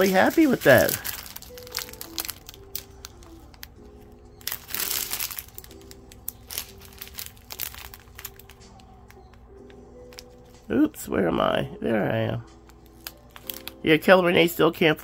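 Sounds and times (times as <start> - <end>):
plastic bags crinkling: 0.0 - 9.4, 12.7 - 14.0
quiet background music: 0.0 - 15.0.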